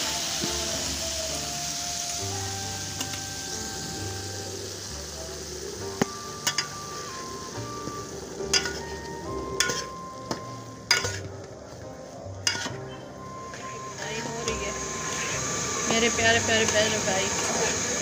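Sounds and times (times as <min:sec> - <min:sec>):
hot fat sizzling: 0:00.0 - 0:18.0
metal spatula scraping a pot: 0:06.4 - 0:07.0, 0:08.4 - 0:11.3, 0:12.4 - 0:12.8.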